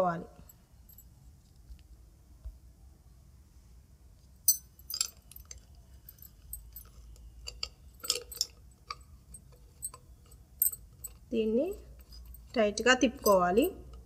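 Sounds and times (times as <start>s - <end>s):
small metal clicks and clinks: 4.5s - 14.0s.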